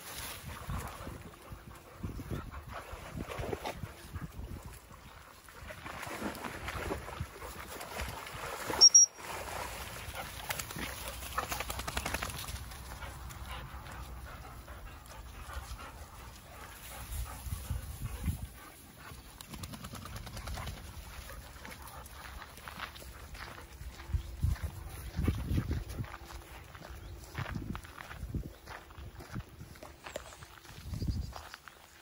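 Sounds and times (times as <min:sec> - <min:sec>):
dogs playing and running: 0:00.0 - 0:32.0
short high-pitched sound: 0:08.8 - 0:09.3.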